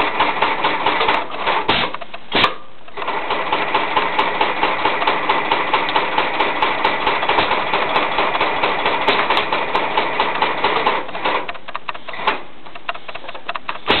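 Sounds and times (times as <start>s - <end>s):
sewing machine stitching: 0.0s - 14.0s
clicks and a knock: 10.6s - 14.0s.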